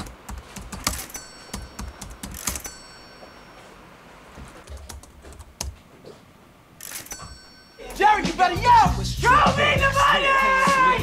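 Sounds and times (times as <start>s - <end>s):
typing clicks and taps: 0.0s - 2.7s
short high dings: 1.0s - 4.2s, 7.0s - 8.8s
faint background music: 7.7s - 11.0s.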